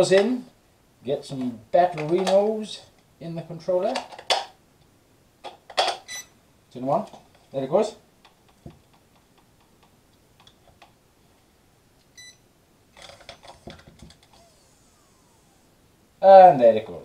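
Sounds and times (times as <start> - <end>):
short electronic beep: 12.2 - 12.4
small motor whirring and rattling: 13.0 - 15.8.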